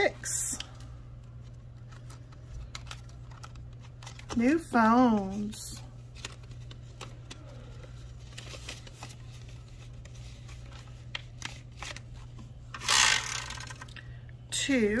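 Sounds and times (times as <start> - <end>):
paper bills and plastic pages rustling: 0.0 - 13.9
plastic spinner wheel rattling: 12.8 - 13.9.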